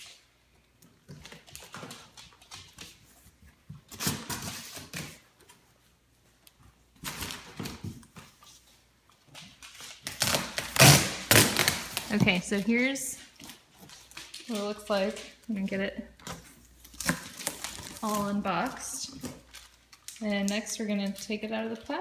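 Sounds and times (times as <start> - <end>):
plastic wrap rustling: 6.7 - 22.0.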